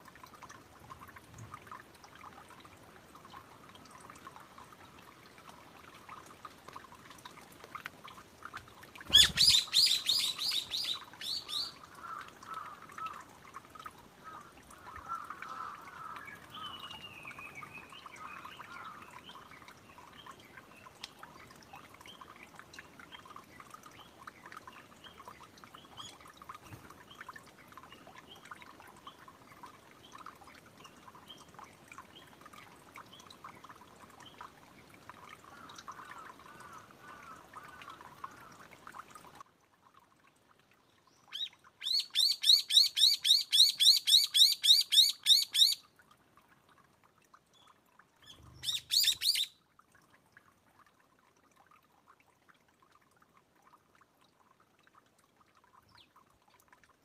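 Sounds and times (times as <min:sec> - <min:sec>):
water trickling: 0:00.0 - 0:57.0
bird calling harsh notes: 0:09.1 - 0:11.7, 0:48.6 - 0:49.5
faint bird chirps: 0:09.1 - 0:11.8, 0:47.6 - 0:49.6.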